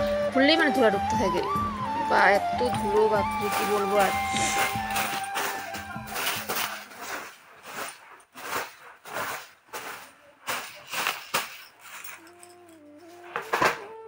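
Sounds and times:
broom swishing on sheet: 3.5s - 12.1s.

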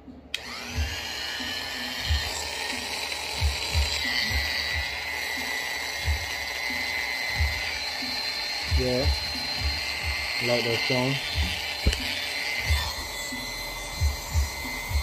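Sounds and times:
clipper motor whining: 0.3s - 15.0s
low handling knocks: 11.4s - 12.1s.

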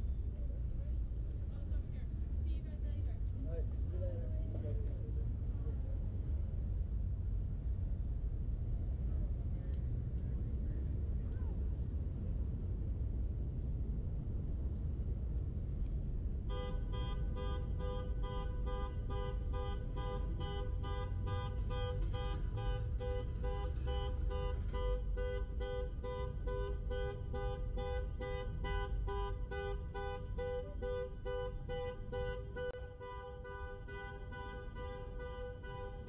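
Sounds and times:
low traffic rumble: 0.0s - 36.0s
car alarm horn blasts: 16.5s - 36.0s.

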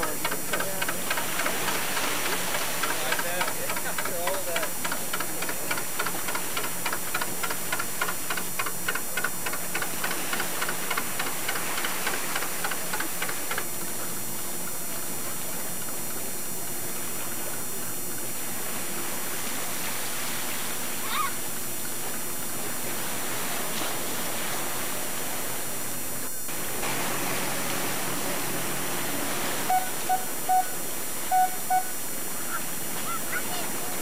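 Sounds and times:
boat engine chugging: 0.0s - 25.8s, 26.4s - 34.0s
steady engine hum: 0.0s - 34.0s
wash of water: 26.5s - 31.2s.

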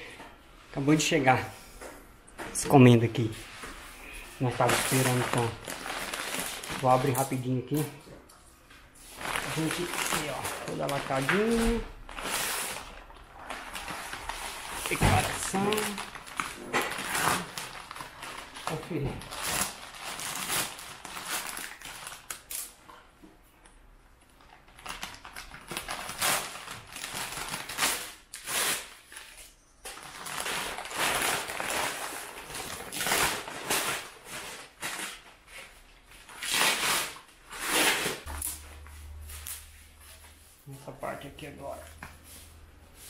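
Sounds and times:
paper and plastic film tearing: 4.4s - 7.9s, 9.0s - 22.8s, 24.4s - 38.6s
bubble-wrapped box handled: 4.5s - 7.4s, 9.0s - 22.5s, 24.4s - 38.5s.

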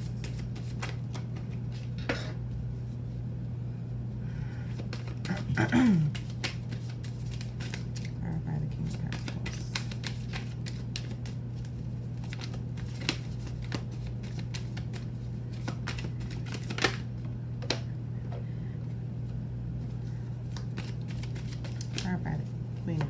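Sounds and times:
cards being shuffled: 0.0s - 2.0s, 4.7s - 17.8s, 20.4s - 22.2s.

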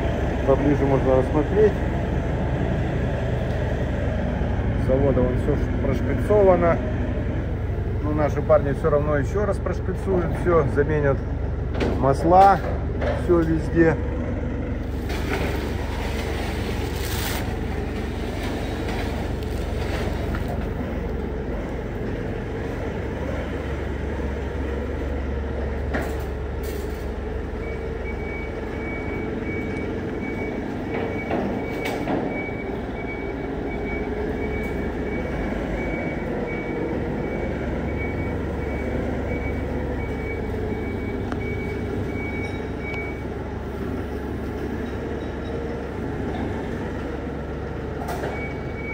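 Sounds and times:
forklift humming: 0.0s - 48.9s
high warning beep: 27.7s - 43.3s.

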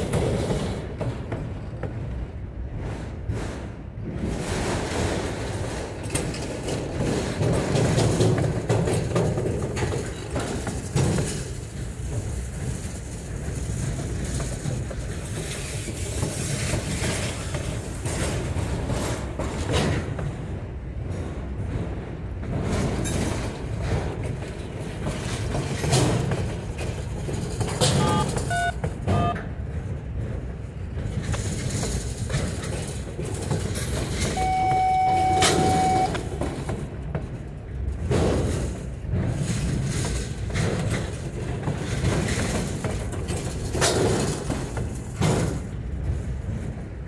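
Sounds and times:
train wheels rumbling on rail: 0.0s - 47.0s
wheels clacking on rail joints: 0.0s - 47.0s
wheels squealing on rail: 34.2s - 36.6s.

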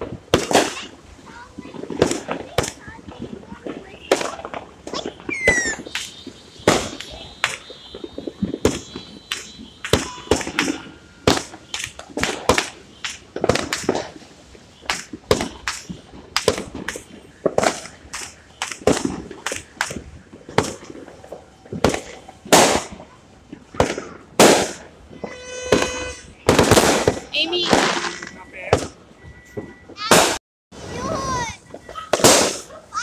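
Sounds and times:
fireworks banging: 0.0s - 33.0s
falling firework whistle: 3.8s - 14.2s, 24.1s - 33.0s.

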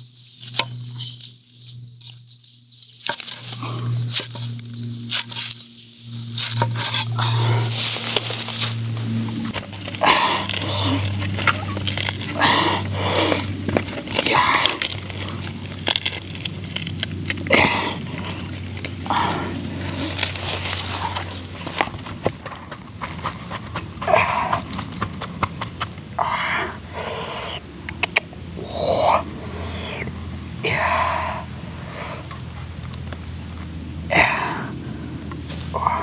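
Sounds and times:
hands rustling plant stalks: 3.0s - 22.5s.

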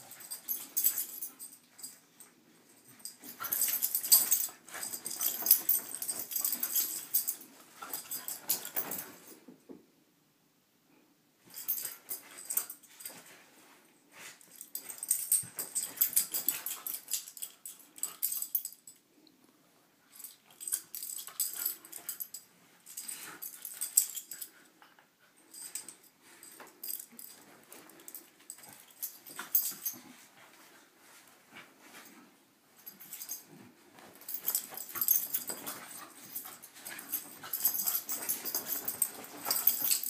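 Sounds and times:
duvet rustling: 0.0s - 9.3s, 25.7s - 40.0s.

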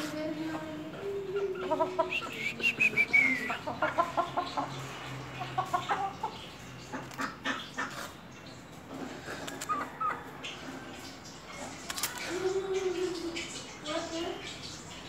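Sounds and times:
chickens clucking: 0.0s - 13.8s
sharp clicks: 11.9s - 12.2s.

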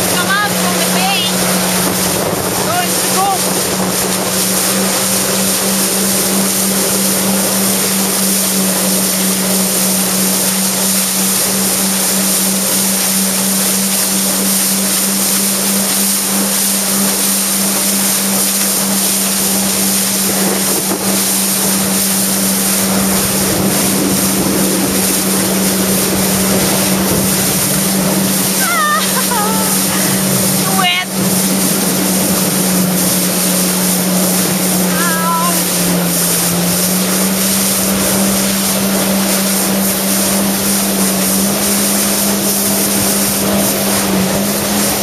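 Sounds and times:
wind on microphone: 0.0s - 8.2s, 19.6s - 45.0s
jet ski engine running: 0.0s - 45.0s
water rushing past hull: 0.0s - 45.0s.

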